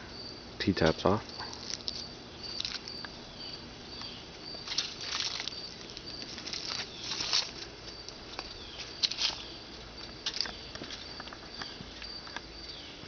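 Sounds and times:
faint crickets chirping: 0:00.0 - 0:13.0
footsteps on dry leaves: 0:04.6 - 0:12.0.

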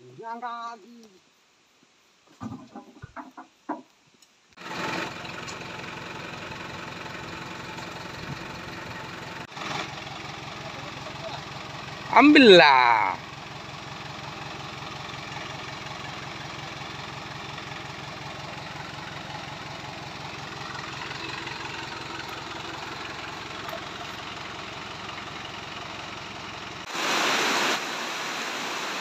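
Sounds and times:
steady hiss: 0:00.0 - 0:04.6, 0:26.8 - 0:29.0
car engine idling: 0:04.6 - 0:26.9
loud rush of noise: 0:26.9 - 0:29.0.

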